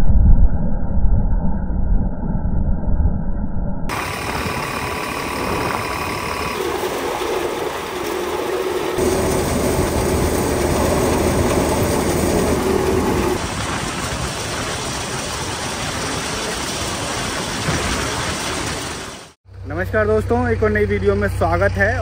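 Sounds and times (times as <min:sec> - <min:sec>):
tractor and threshing machine drone: 0:03.9 - 0:17.8.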